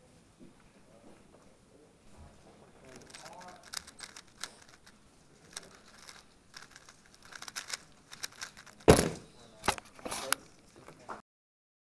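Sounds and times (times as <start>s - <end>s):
plastic cube clicking: 2.9s - 10.6s
thump on timer pads: 8.9s - 9.3s.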